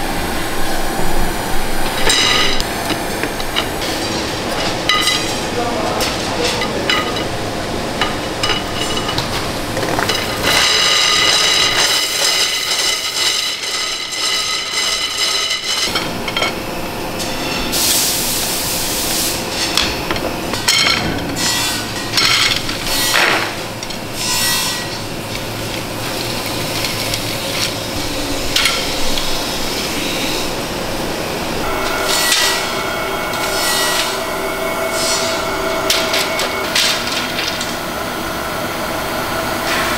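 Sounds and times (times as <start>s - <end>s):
machine whine: 0.0s - 39.9s
hard tubes knocking and rubbing: 8.0s - 16.6s, 31.6s - 38.8s.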